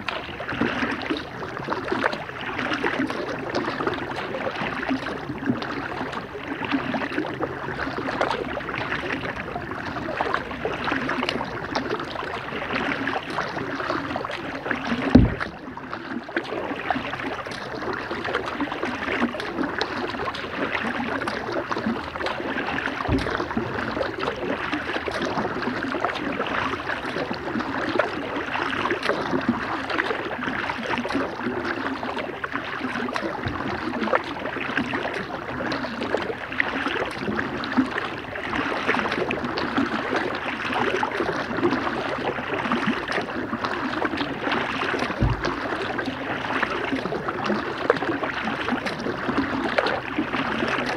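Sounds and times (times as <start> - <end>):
paddle splashes and drips: 0.0 - 50.9
paddle knock: 14.3 - 15.9, 22.2 - 25.4, 33.2 - 34.4, 45.0 - 46.0.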